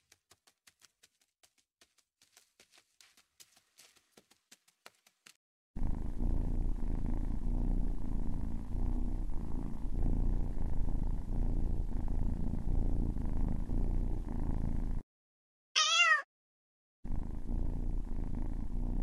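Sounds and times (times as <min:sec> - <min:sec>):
cat purring: 0:05.8 - 0:15.0, 0:17.1 - 0:19.0.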